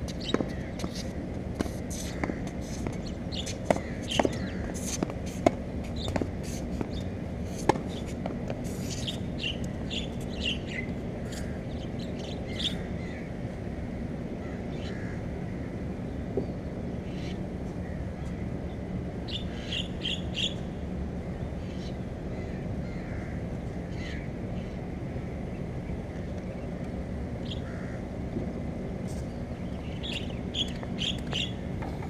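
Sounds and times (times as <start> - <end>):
low background rumble: 0.0 - 32.0
birds chirping: 2.0 - 4.8, 8.9 - 13.3, 15.9 - 20.7, 25.4 - 28.0, 29.2 - 32.0.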